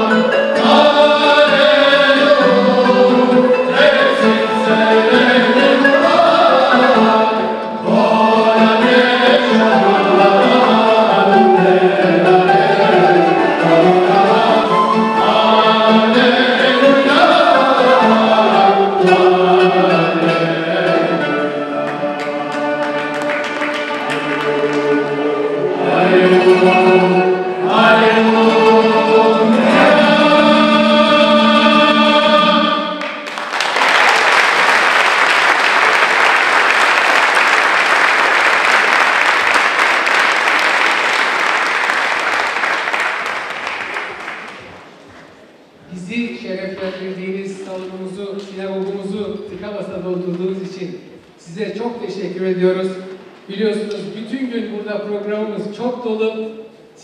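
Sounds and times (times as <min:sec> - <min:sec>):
choir singing a hymn: 0:00.0 - 0:33.2
traditional instruments: 0:00.0 - 0:33.3
audience applause: 0:22.2 - 0:25.0, 0:33.0 - 0:45.0.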